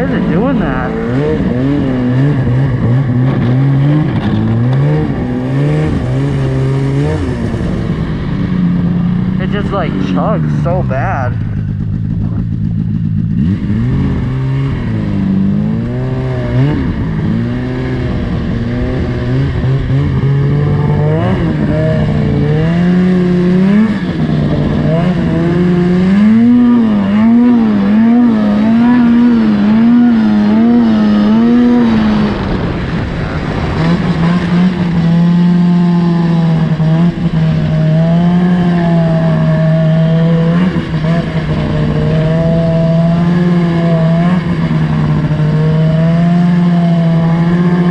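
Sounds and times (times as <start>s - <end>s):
snowmobile engine chugging: 0.0s - 47.9s.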